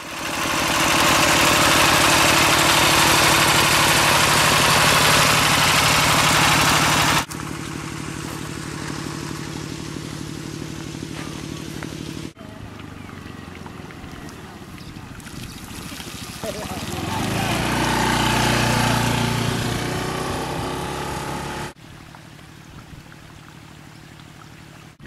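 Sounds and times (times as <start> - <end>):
small diesel engine chugging: 0.0 - 13.0, 16.4 - 21.8.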